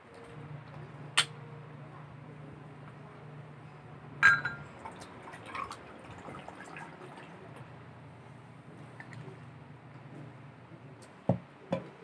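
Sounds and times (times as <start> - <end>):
faint low hum: 0.0 - 12.0
utensil clinking against a dish: 4.2 - 4.7.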